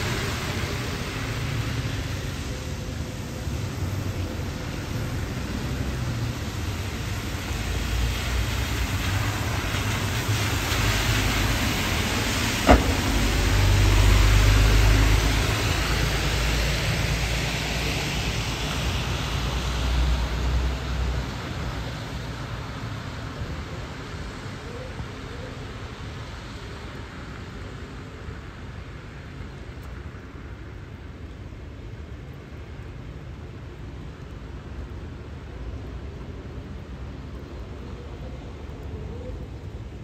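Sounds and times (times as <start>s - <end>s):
bus engine rumble: 0.0s - 24.4s
tyre hiss on wet road: 0.0s - 24.6s.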